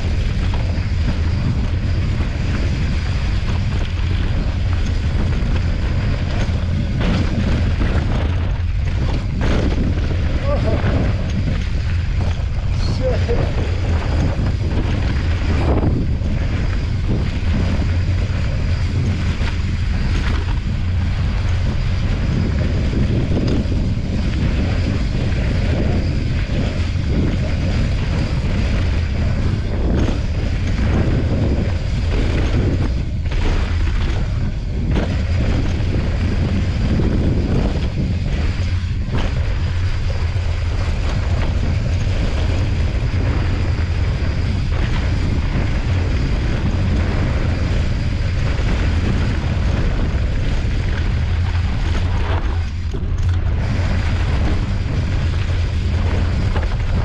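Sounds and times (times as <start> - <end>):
tyres rolling over dirt: 0.0 - 57.0
wind buffeting microphone: 0.0 - 57.0.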